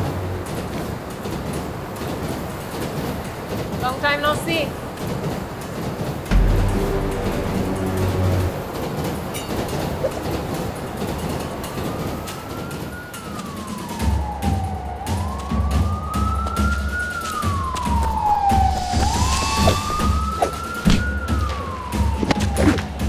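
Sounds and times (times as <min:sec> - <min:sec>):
pulsing low beat: 0:06.3 - 0:09.0
sharp hit: 0:06.3 - 0:09.5
siren wailing: 0:11.2 - 0:23.0.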